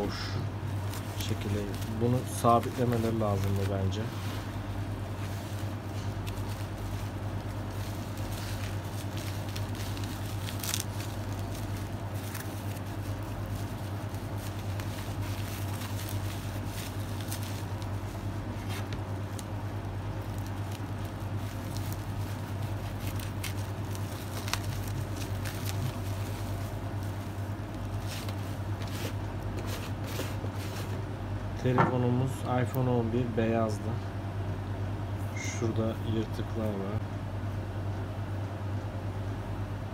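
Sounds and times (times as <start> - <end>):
bubble wrap crinkling: 0.0 - 31.0.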